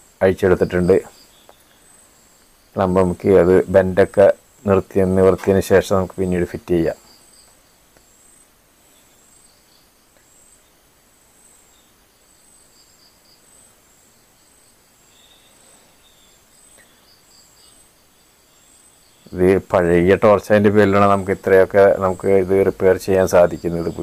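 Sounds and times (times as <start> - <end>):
crickets chirping: 0.0 - 24.0
faint small clicks: 7.4 - 8.1, 10.1 - 10.3.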